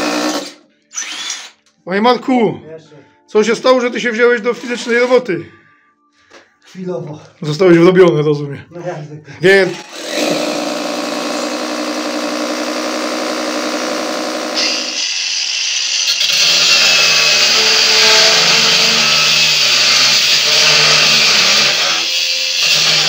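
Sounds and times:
cordless drill boring: 0:00.0 - 0:01.6, 0:09.7 - 0:23.0
angle grinder cutting metal: 0:09.6 - 0:23.0.

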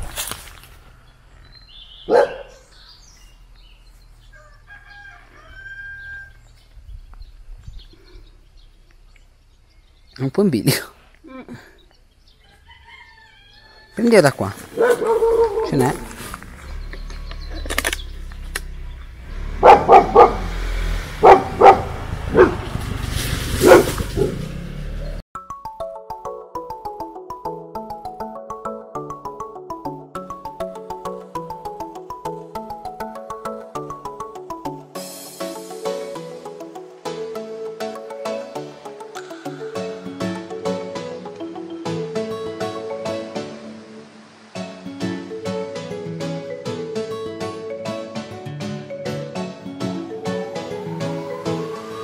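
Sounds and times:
dog barking: 0:02.1 - 0:02.6, 0:14.7 - 0:15.9, 0:19.6 - 0:20.5, 0:21.2 - 0:22.7, 0:23.6 - 0:24.4
rooster crowing: 0:04.2 - 0:06.6, 0:12.4 - 0:14.0.

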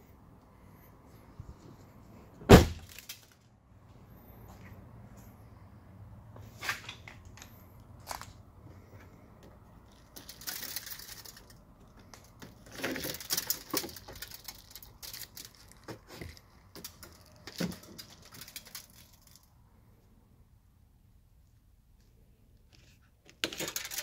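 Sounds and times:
rustling and clattering: 0:09.8 - 0:19.5.

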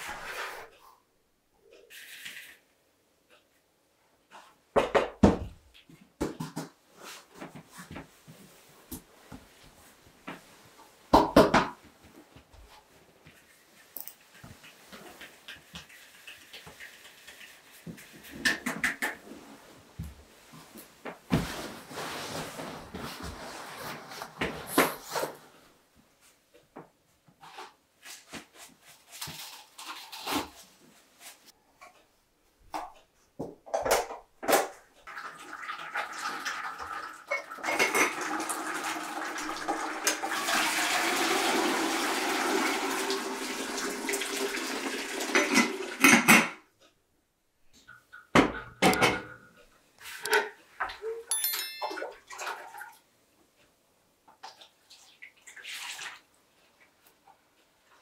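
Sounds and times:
water pouring: 0:35.1 - 0:46.0, 0:51.8 - 0:53.0, 0:54.6 - 0:56.3.

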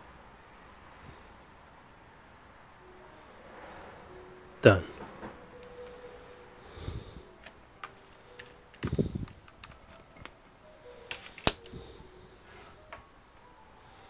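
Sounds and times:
hands handling laptop clicks: 0:07.4 - 0:10.4, 0:11.1 - 0:11.8.

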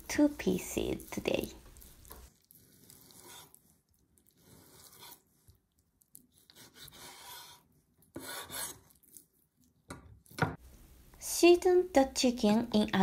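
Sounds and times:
knife scraping on cutting board: 0:01.7 - 0:03.7, 0:04.3 - 0:05.5, 0:06.4 - 0:09.2.

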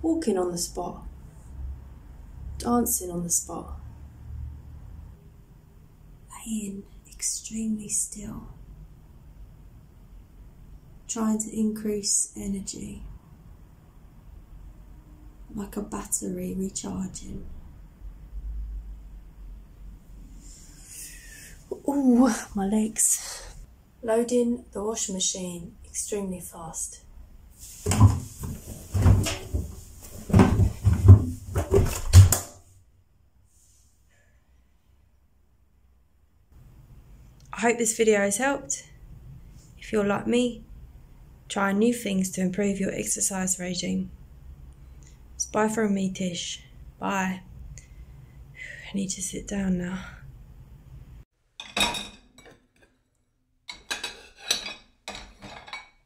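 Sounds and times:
fabric rustling: 0:27.6 - 0:32.1
washing machine door and drum thumps: 0:27.8 - 0:32.6
cutlery clinking against crockery: 0:53.7 - 0:56.0.

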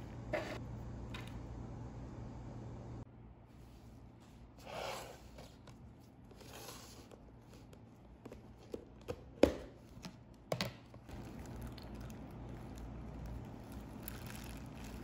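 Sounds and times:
plastic rustling: 0:11.1 - 0:15.0.

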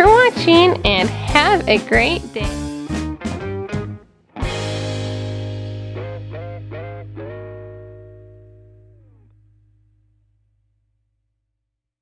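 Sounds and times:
electric guitar chord sliding down: 0:04.4 - 0:09.7.

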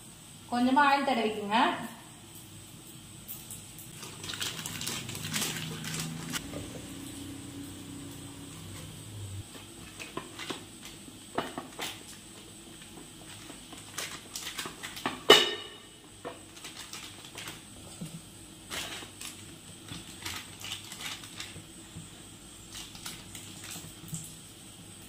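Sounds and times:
plastic sheet crinkling: 0:03.8 - 0:06.4, 0:13.2 - 0:15.2, 0:16.4 - 0:17.8, 0:18.6 - 0:24.2.

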